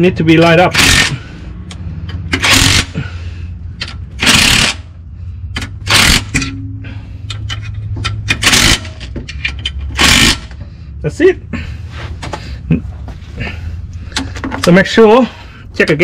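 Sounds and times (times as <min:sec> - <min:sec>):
impact driver bursts: 0:00.7 - 0:01.2, 0:02.3 - 0:03.0, 0:04.2 - 0:04.9, 0:05.8 - 0:06.4, 0:08.3 - 0:09.0, 0:09.9 - 0:10.5
low hum: 0:01.2 - 0:14.7.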